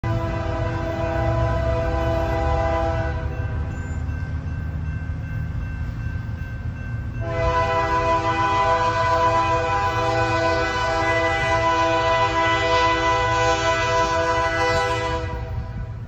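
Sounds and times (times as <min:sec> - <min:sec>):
locomotive air horn chord: 0:00.0 - 0:03.6, 0:07.2 - 0:16.0
diesel engines rumbling: 0:00.0 - 0:16.0.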